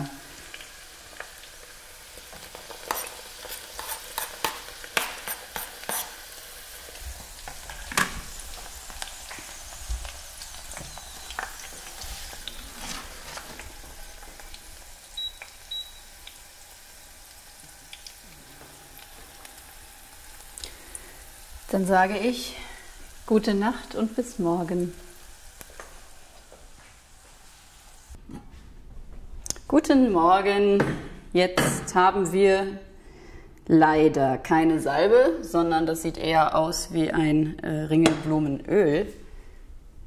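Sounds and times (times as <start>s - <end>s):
oil bubbling and sizzling in pot: 0.0s - 28.2s
knife scraping cutting board: 2.9s - 6.2s.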